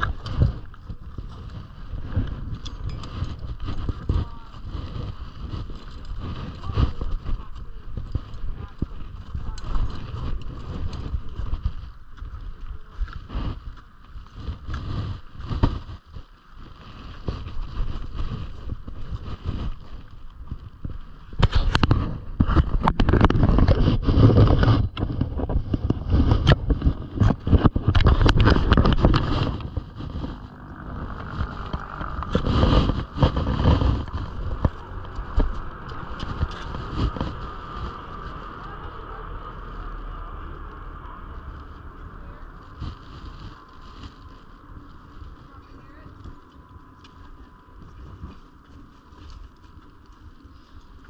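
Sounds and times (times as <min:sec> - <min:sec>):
climbing gear clinking: 0:00.0 - 0:14.8
footsteps crunching on ice: 0:00.0 - 0:51.0
wind buffeting microphone: 0:00.0 - 0:51.0.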